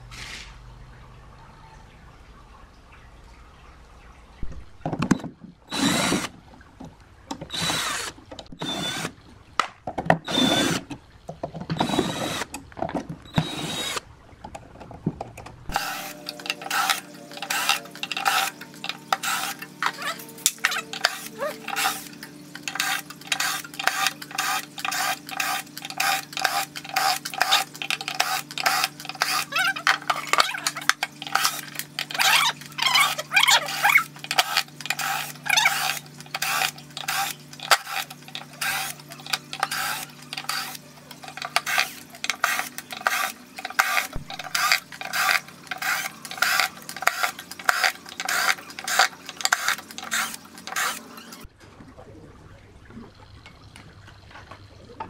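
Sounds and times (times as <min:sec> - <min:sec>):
motor hum: 0:00.0 - 0:55.0
power tool bursts: 0:05.7 - 0:06.3, 0:07.5 - 0:09.2, 0:10.3 - 0:10.9, 0:11.8 - 0:12.5, 0:13.3 - 0:14.0, 0:15.7 - 0:22.1, 0:41.5 - 0:51.4.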